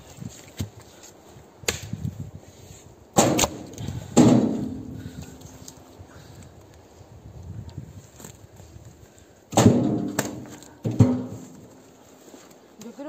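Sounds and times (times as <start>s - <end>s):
firewood knocking into metal trailer: 3.2s - 5.0s, 9.5s - 11.7s.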